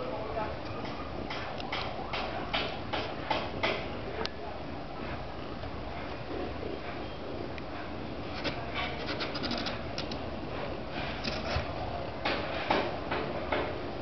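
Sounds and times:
small clicks and scrapes: 0:07.6 - 0:11.7
kittens scratching and rustling: 0:07.6 - 0:11.8.

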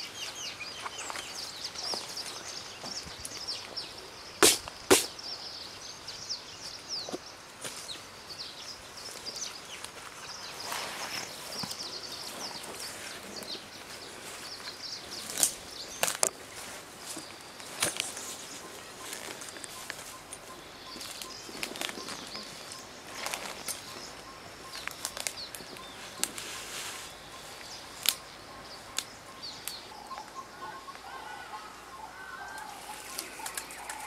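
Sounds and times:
birds chirping: 0:00.0 - 0:34.0
steady background hiss: 0:00.0 - 0:34.0
sharp knocks: 0:04.4 - 0:05.1.

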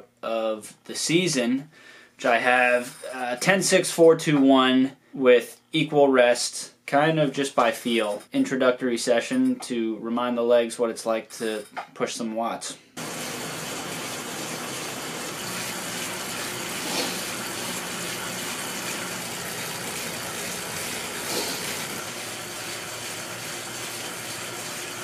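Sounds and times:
bike trainer whirring: 0:13.0 - 0:25.0.

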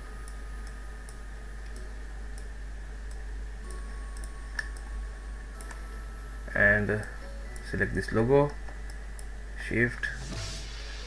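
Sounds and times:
electrical hum and hiss: 0:00.0 - 0:11.0.

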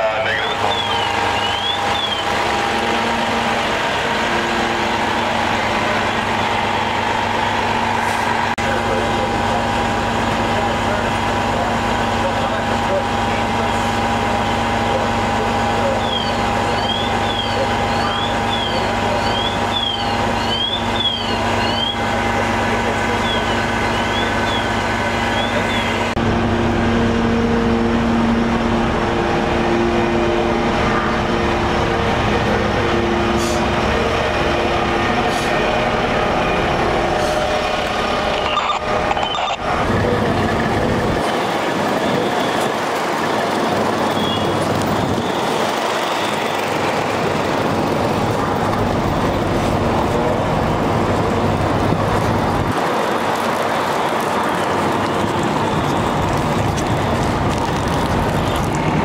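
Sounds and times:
diesel engines running: 0:00.0 - 0:59.0
high electronic chirping: 0:38.1 - 0:39.7.

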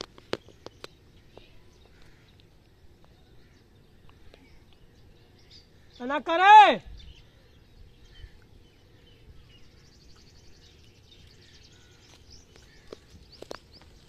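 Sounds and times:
dry leaves rustling: 0:11.4 - 0:14.0.

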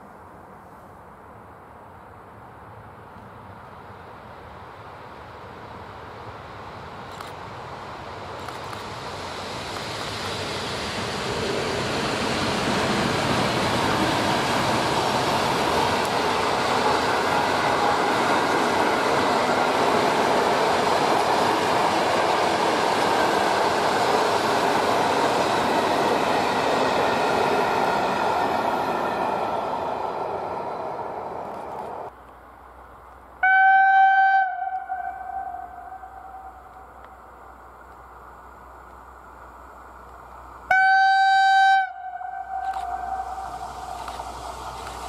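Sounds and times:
train wheels rumbling on rails: 0:04.4 - 0:32.2, 0:41.9 - 0:45.0.

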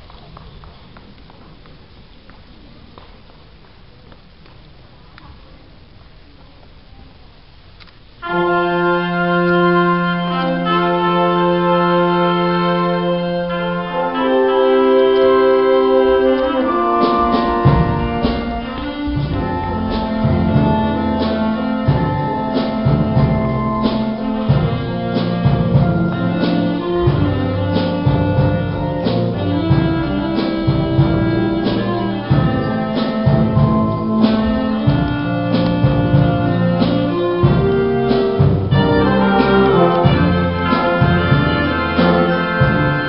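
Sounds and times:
wind band chords: 0:08.2 - 0:43.0
percussion steady beat: 0:15.4 - 0:43.0.

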